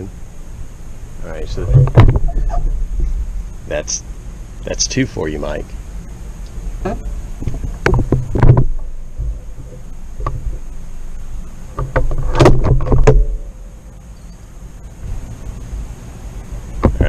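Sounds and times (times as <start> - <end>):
microphone handling noise: 1.4 - 3.9, 6.4 - 13.6, 16.8 - 17.0.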